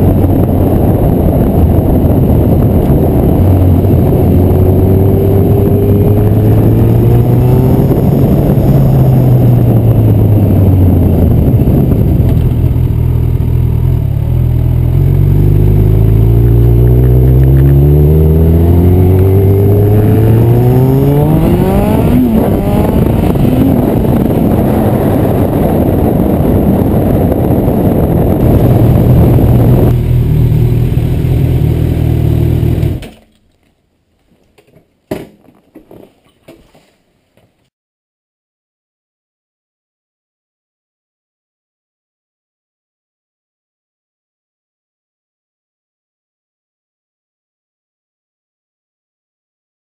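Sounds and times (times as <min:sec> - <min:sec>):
motorcycle engine revving: 0:00.0 - 0:33.1
wind rushing on camera: 0:00.0 - 0:33.1.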